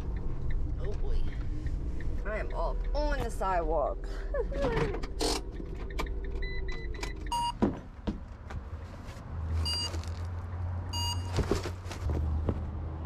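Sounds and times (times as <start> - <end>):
electronic beeps: 5.4 - 7.6, 11.0 - 11.3.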